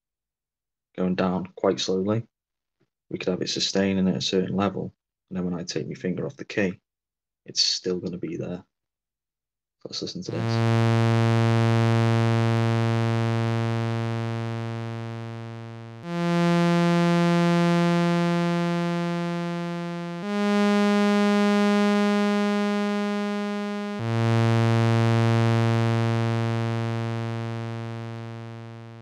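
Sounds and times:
synthesizer playing slow notes: 0:10.3 - 0:29.0.

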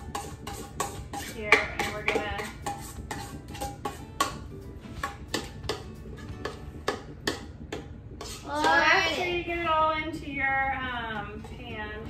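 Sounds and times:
spatula scraping metal bowl: 0:00.0 - 0:09.4.

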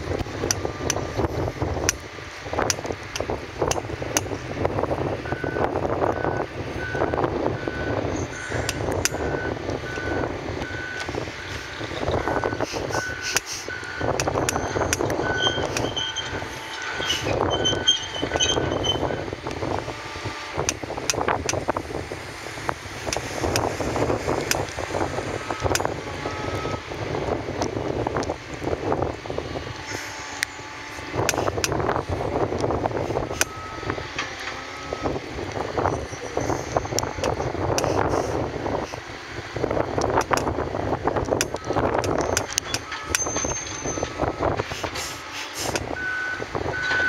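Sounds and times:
diesel excavator engines rumbling: 0:00.0 - 0:47.0
wind on microphone: 0:00.0 - 0:47.0.

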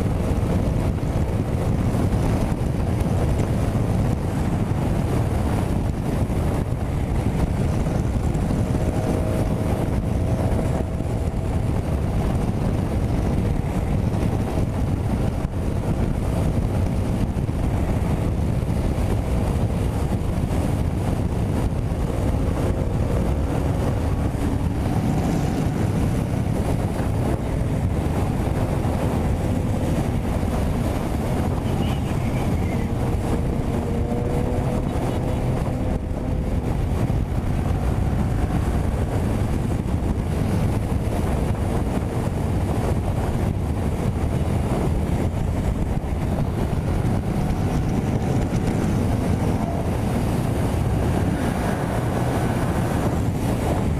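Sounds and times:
motorcycle engine droning: 0:00.0 - 0:53.9
wind noise on microphone: 0:00.0 - 0:53.9.

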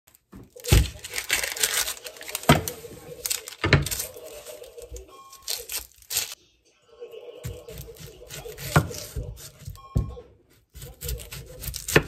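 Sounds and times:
plastic crinkling: 0:00.1 - 0:06.4.

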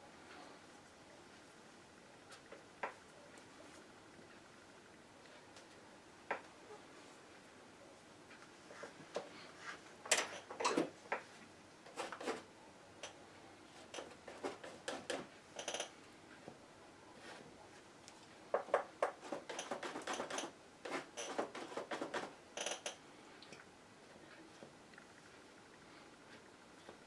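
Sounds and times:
palette knife scraping canvas: 0:19.2 - 0:22.3.

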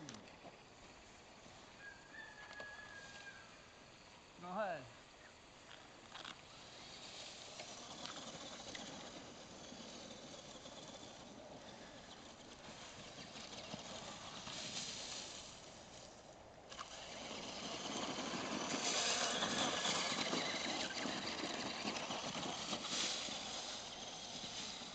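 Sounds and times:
toy truck driving over gravel: 0:05.5 - 0:24.9.

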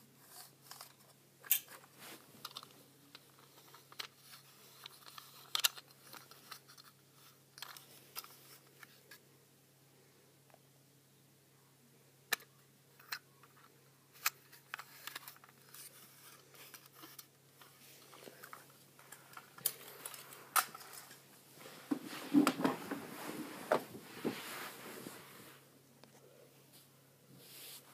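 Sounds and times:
plastic toys clicking and knocking: 0:02.4 - 0:07.0.

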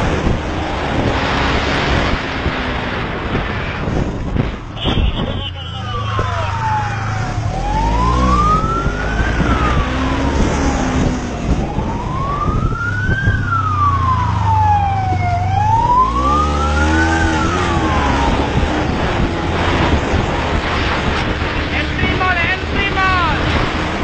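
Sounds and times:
police siren wailing: 0:05.2 - 0:23.8.

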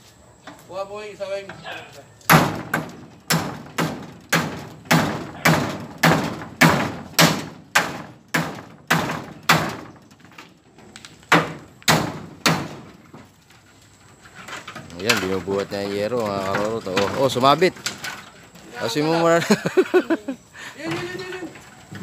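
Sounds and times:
hammer driving nails into metal sheet: 0:02.3 - 0:09.9.

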